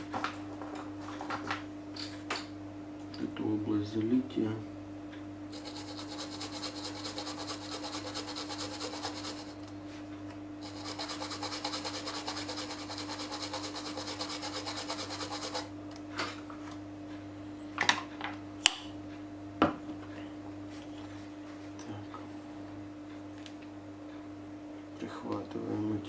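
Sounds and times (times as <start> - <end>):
steady low hum: 0.0 - 26.0
cotton swab scrubbing circuit board: 5.5 - 9.5, 10.6 - 15.7.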